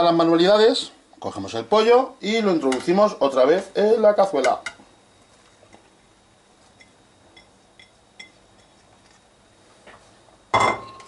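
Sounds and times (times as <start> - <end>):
plate clinking on steel pot: 10.6 - 11.0.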